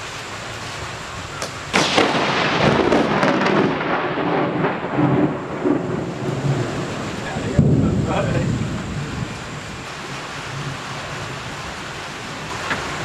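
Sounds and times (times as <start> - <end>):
steady hiss: 0.0 - 13.0
thunder crack and rumble: 1.4 - 11.6.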